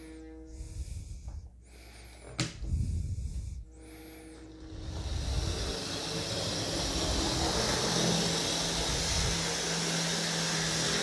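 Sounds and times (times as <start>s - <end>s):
low hum: 0.0s - 11.0s
model train running on rails: 4.6s - 11.0s.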